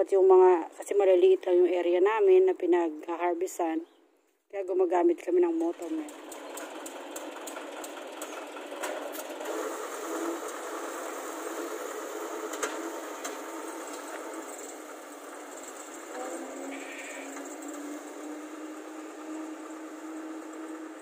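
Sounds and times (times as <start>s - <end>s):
rotary mower cutting grass: 5.5s - 21.0s
tractor diesel engine running: 5.5s - 21.0s.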